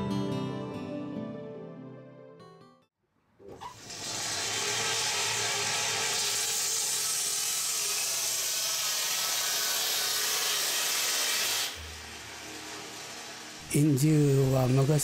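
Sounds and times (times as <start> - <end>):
lathe tool cutting wood hiss: 3.8 - 15.0.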